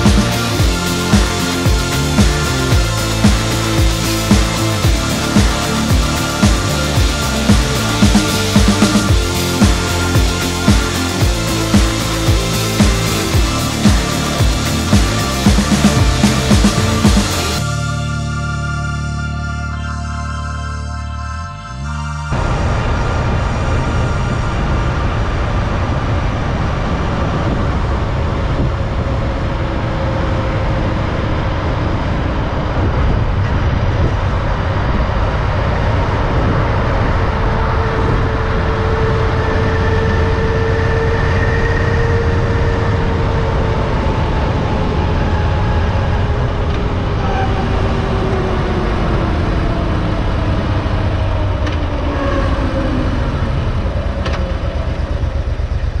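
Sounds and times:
motorcycle engine: 0.0s - 56.0s
wind rush on microphone: 22.3s - 56.0s.

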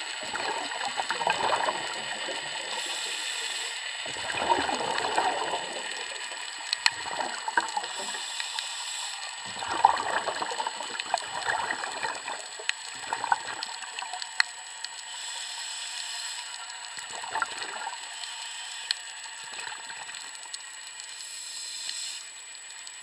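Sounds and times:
bubbling: 0.0s - 8.5s, 9.1s - 15.0s, 16.6s - 18.2s, 19.4s - 20.9s
underwater hiss: 0.0s - 22.7s.

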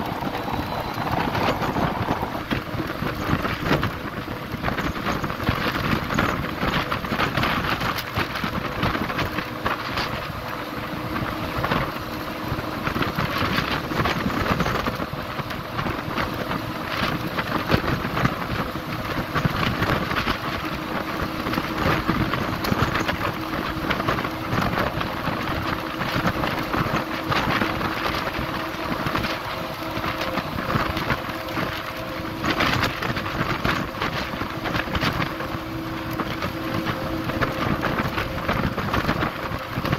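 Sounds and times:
faint hum: 0.0s - 4.0s
vehicle road noise: 0.0s - 39.9s
wind buffeting microphone: 0.0s - 39.9s.

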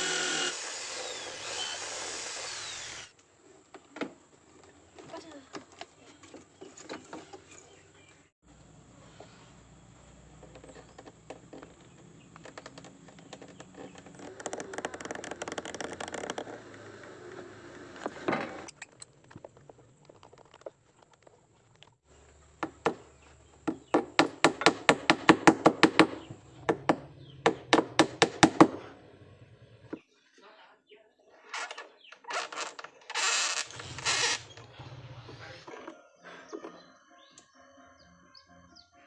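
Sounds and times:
hand tool scraping wood: 0.0s - 3.2s, 31.6s - 34.7s.

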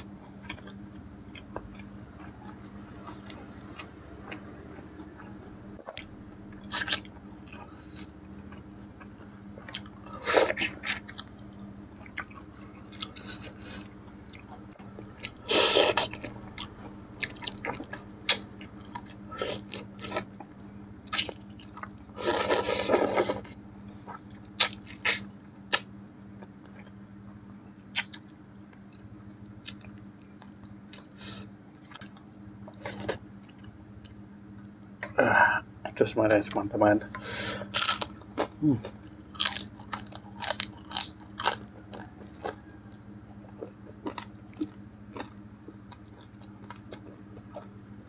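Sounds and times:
person chewing and biting: 0.0s - 23.5s, 24.1s - 27.0s, 37.6s - 48.0s.

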